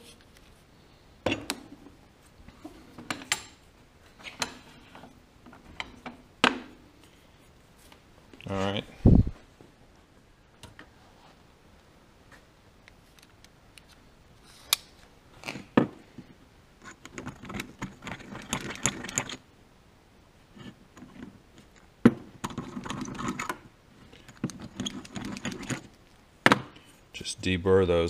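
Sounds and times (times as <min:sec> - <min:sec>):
tool and part clicks and knocks: 0:03.0 - 0:03.6.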